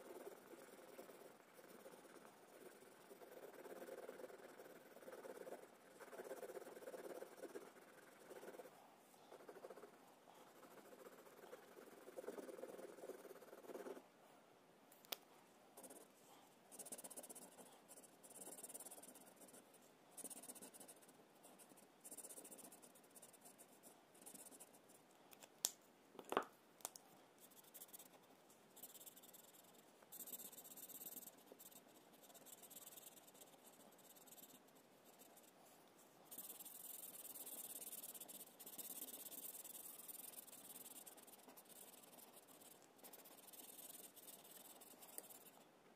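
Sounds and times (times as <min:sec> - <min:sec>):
marker rubbing on paper: 0:00.0 - 0:08.7, 0:16.7 - 0:24.9, 0:36.3 - 0:45.6.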